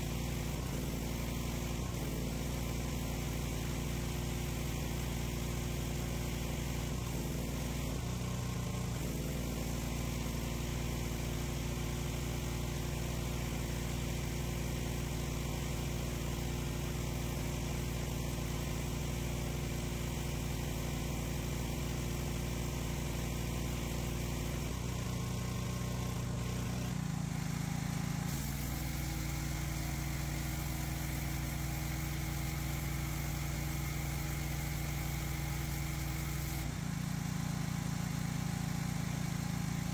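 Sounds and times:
pressure washer engine drone: 0.0 - 39.9
water spray hissing on concrete: 0.0 - 39.9.

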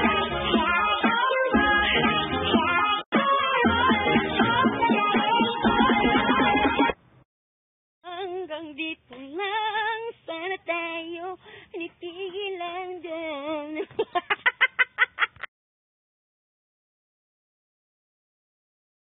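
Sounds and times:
woman singing unaccompanied: 8.0 - 14.0.

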